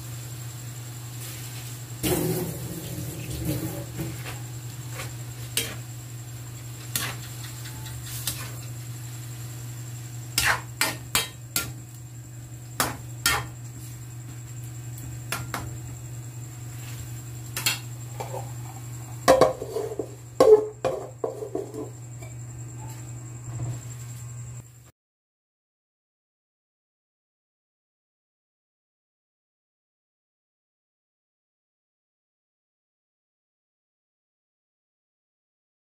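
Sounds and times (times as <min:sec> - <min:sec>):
metal spatula scraping a wok: 0:03.5 - 0:05.9, 0:06.8 - 0:08.8, 0:10.3 - 0:11.8, 0:12.8 - 0:13.6, 0:17.6 - 0:21.9.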